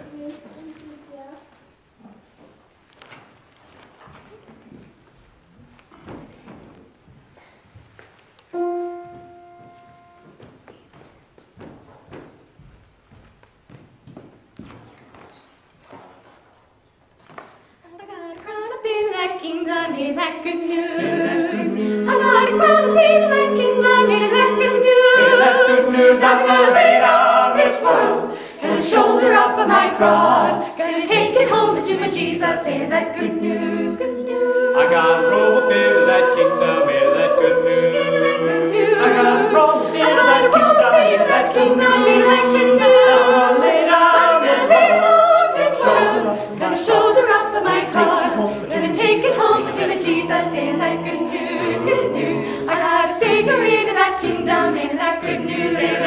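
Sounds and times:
children's choir singing a cappella: 0:08.5 - 0:10.5, 0:18.2 - 0:56.0.

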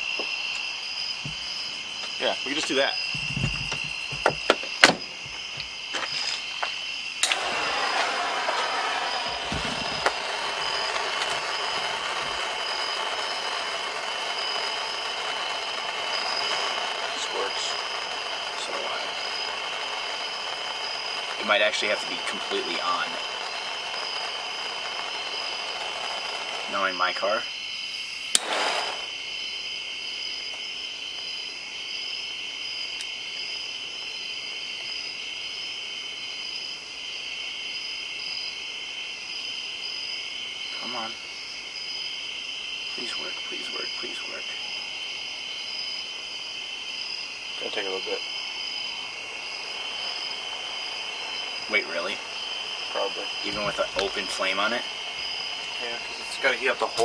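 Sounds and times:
butane torch hissing: 0:00.0 - 0:31.5, 0:47.5 - 0:57.0
night insects chirring: 0:00.0 - 0:57.0
short rush of noise: 0:28.4 - 0:29.1.

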